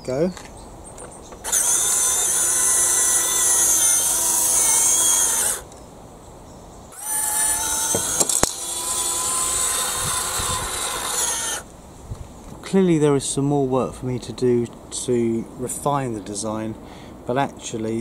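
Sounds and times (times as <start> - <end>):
small gear motor whirring: 1.4 - 5.7, 6.9 - 11.7
sharp clicks: 7.0 - 11.6.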